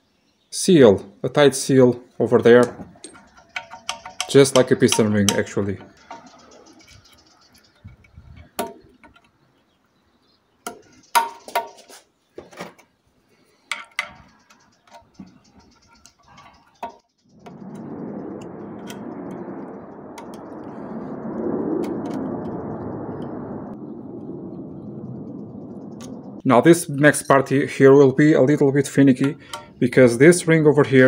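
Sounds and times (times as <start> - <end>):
small metal parts clinking: 2.6 - 9.3, 13.5 - 17.0
steady rushing noise: 15.3 - 31.0.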